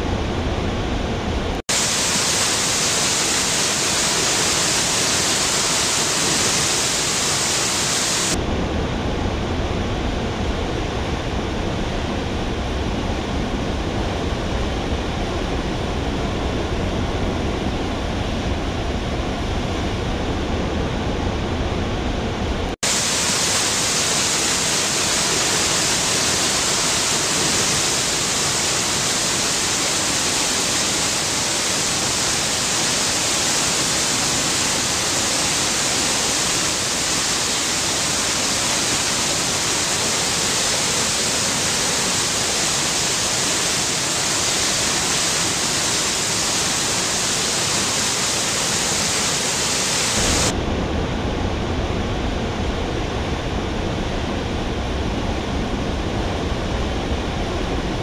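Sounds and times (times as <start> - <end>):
falling water rushing: 1.6 - 8.4, 22.8 - 50.5
water rushing and spraying: 1.6 - 8.4, 22.8 - 50.7.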